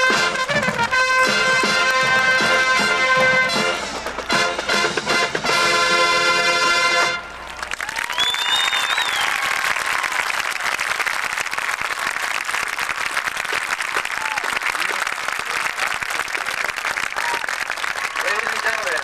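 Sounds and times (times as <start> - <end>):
crowd applauding and cheering: 0.0 - 19.0
shouts or whistles: 7.9 - 10.2.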